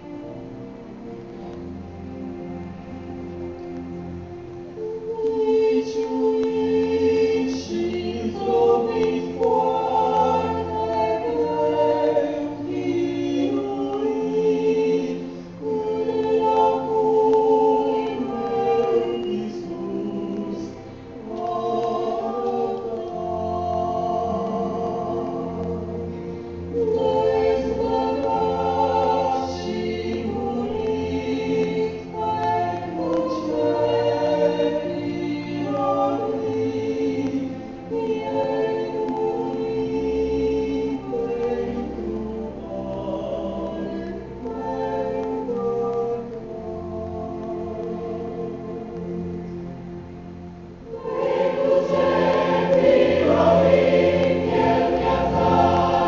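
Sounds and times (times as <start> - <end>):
choir singing a hymn: 0.0 - 56.0.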